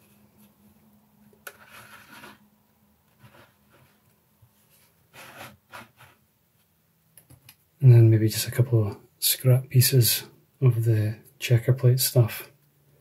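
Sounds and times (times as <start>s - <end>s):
plastic parts rubbing and scraping: 1.4s - 2.4s, 3.1s - 6.2s.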